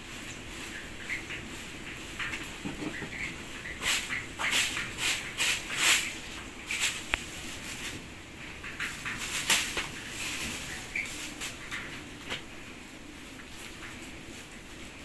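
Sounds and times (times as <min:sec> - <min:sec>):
broom sweeping dirt floor: 0:03.6 - 0:08.2, 0:08.8 - 0:12.3.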